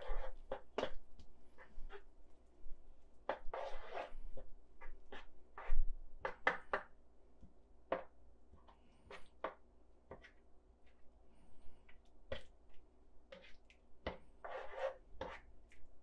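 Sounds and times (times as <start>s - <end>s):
spoon scraping a frying pan: 0.0s - 1.0s, 3.3s - 6.8s, 13.3s - 15.5s.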